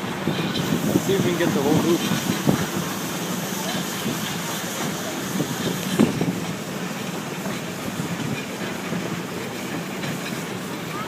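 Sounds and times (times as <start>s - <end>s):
train cars rumbling on rails: 0.0s - 11.0s
wheels clicking over rail joints: 0.0s - 11.0s.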